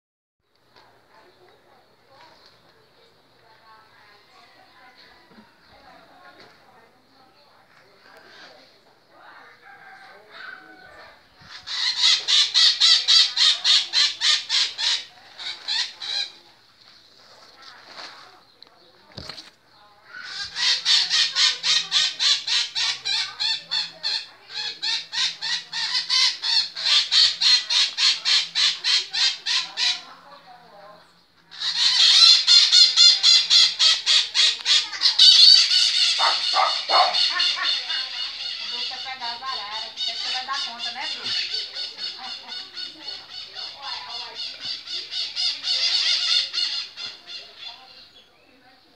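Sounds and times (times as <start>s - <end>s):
parakeets calling: 11.5s - 16.4s, 20.1s - 30.2s, 31.5s - 48.2s.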